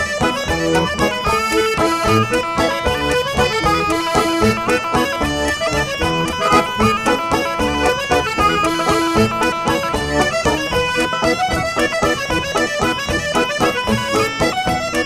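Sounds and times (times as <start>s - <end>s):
folk band playing dance tune: 0.0s - 15.0s.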